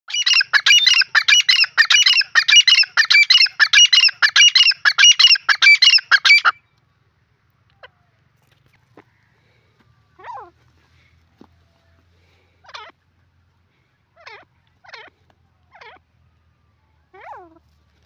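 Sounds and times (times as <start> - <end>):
francolin calling: 0.1 - 6.6.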